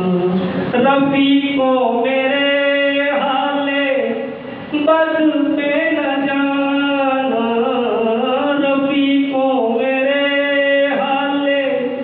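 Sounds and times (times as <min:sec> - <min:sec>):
man singing into microphone: 0:00.0 - 0:12.0.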